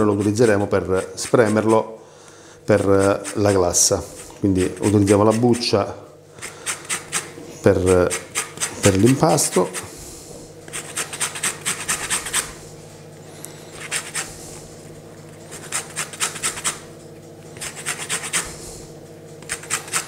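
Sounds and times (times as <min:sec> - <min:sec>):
lemon rind grated on grater: 0:02.8 - 0:05.7.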